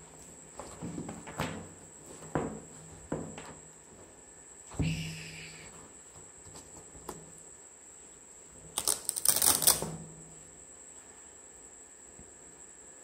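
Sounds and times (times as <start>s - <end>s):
velcro strap ripped open: 8.8s - 9.8s.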